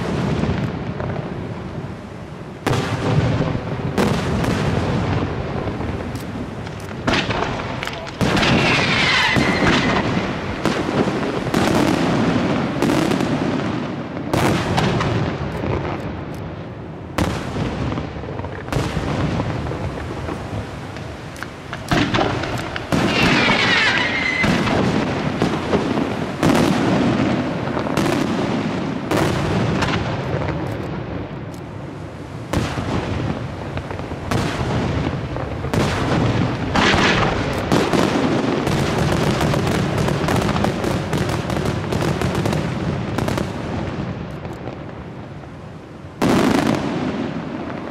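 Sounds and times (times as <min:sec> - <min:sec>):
fireworks launching and bursting: 0:00.0 - 0:47.9
firework whistling glide: 0:07.3 - 0:12.0, 0:21.8 - 0:25.1.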